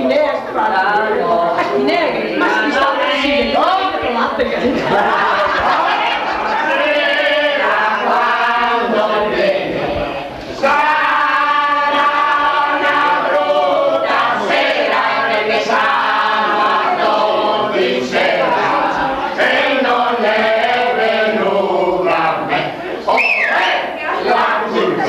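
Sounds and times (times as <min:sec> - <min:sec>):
group singing loudly: 0:04.8 - 0:25.0.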